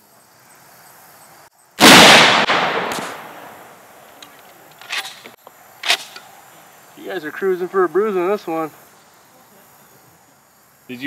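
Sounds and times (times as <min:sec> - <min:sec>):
rifle shot echoing: 0:01.8 - 0:03.8.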